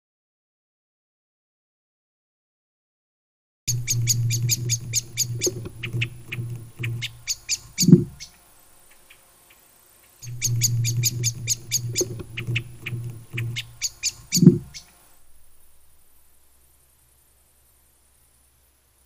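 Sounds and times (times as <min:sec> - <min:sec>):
owl alarm calls: 0:03.7 - 0:15.0.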